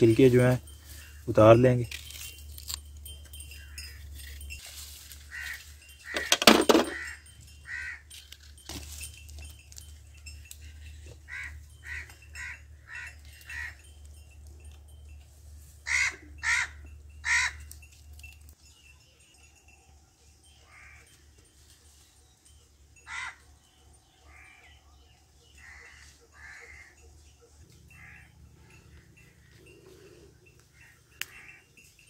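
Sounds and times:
crows cawing: 5.3s - 8.2s, 11.3s - 13.8s, 15.9s - 17.6s, 20.6s - 21.1s, 23.0s - 23.4s, 24.2s - 24.7s, 25.6s - 27.0s, 27.9s - 29.5s.

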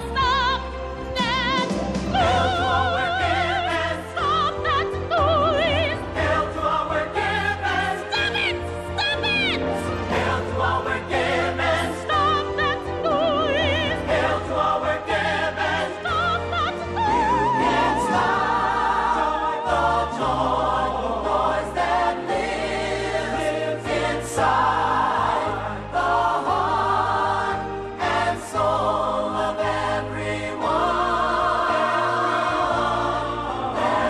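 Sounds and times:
chorus singing with instruments: 0.0s - 34.0s.

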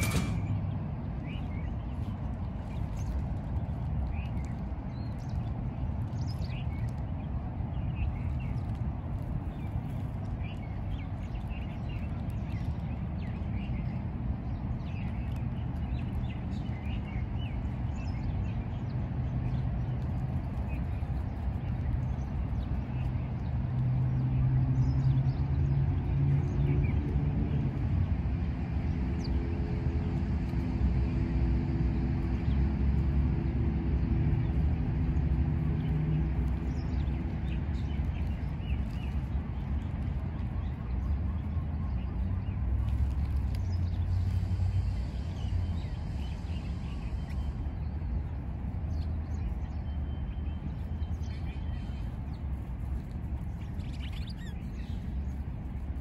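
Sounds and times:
road traffic rumble: 0.0s - 56.0s
small birds chirping: 0.0s - 56.0s
heavy vehicle engine drone: 43.0s - 48.8s.

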